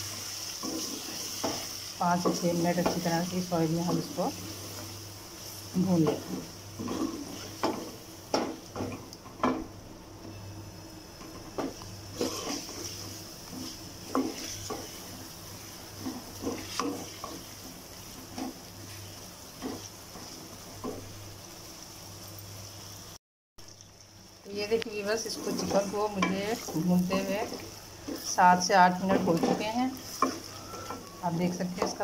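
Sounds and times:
chicken sizzling in oil: 0.0 - 32.0
spatula knocking and scraping pan: 0.6 - 5.0, 5.9 - 9.8, 11.2 - 21.1, 25.3 - 32.0.

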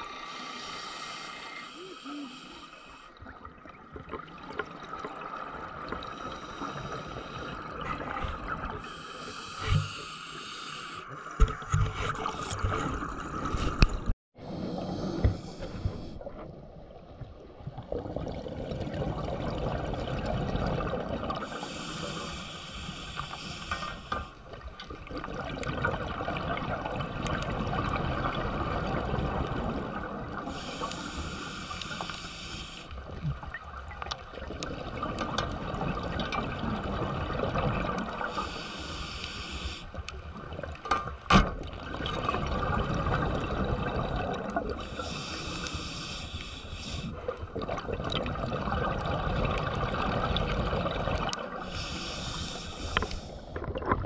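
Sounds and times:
regulator inhale hiss: 0.1 - 3.2, 6.1 - 7.7, 8.8 - 11.2, 14.5 - 16.2, 21.5 - 24.4, 30.4 - 33.0, 38.2 - 40.0, 44.8 - 47.3, 51.6 - 53.6
bubbling exhaled air: 41.8 - 54.0.

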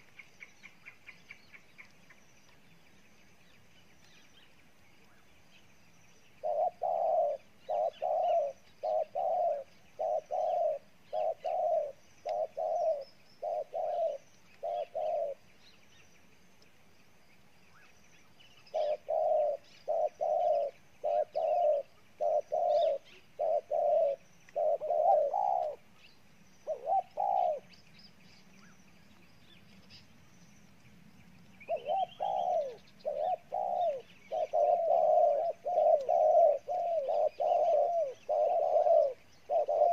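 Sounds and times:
small birds chirping: 0.0 - 39.9
dove cooing: 6.4 - 15.5, 18.7 - 25.9, 26.6 - 27.8, 31.6 - 39.9.

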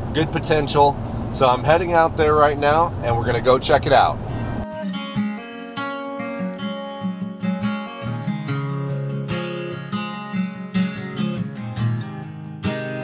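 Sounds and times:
strummed acoustic guitar: 4.3 - 13.0.

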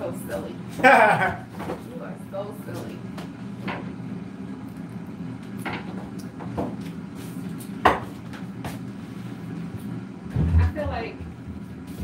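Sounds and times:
air fryer fan humming: 0.0 - 12.0.

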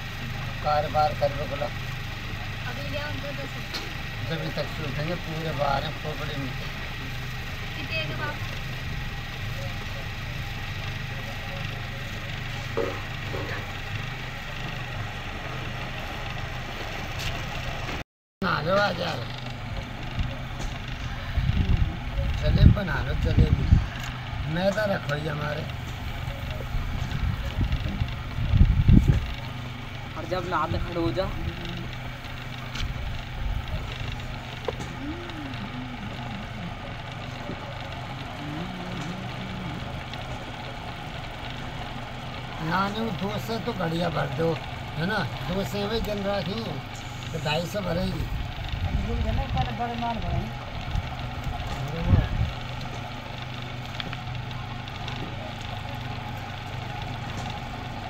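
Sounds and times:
potter's wheel humming: 0.0 - 58.0.

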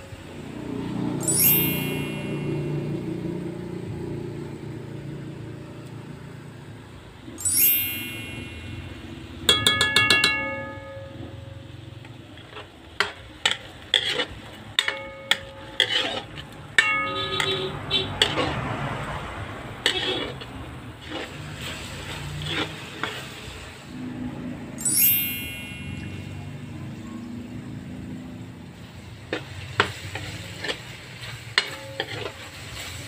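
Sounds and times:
rising chime flourish: 1.1 - 3.5, 7.3 - 9.3, 24.8 - 26.8
metal utensil scraping a pan: 12.4 - 19.2, 19.8 - 23.6, 29.3 - 33.0
frying hiss: 18.2 - 24.5, 27.9 - 33.0.

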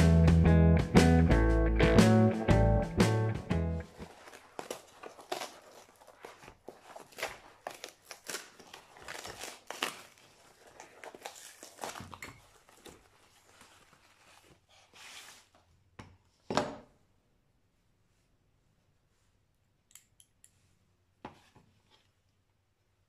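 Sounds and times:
cardboard tearing and crumpling: 3.8 - 15.5.

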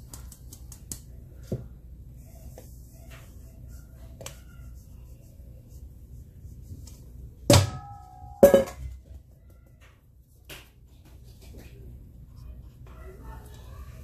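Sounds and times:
metal sieve knocking on steel bowl: 7.5 - 8.9.

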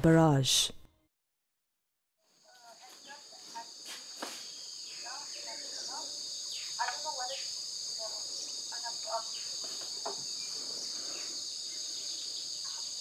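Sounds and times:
insect chorus drone: 2.2 - 13.0
short insect chirps: 2.3 - 13.0.

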